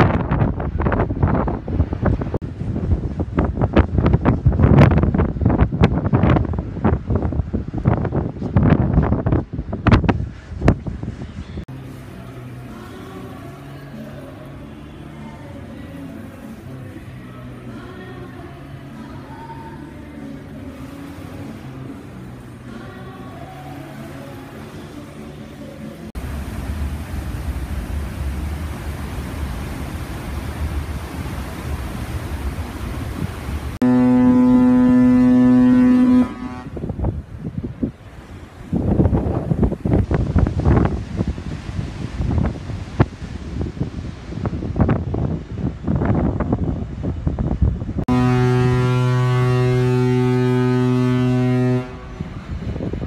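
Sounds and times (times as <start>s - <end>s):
water noise: 0.0s - 53.0s
wind: 0.0s - 53.0s
ship's horn blast: 11.3s - 39.2s, 48.0s - 53.0s
low rumble: 50.5s - 53.0s.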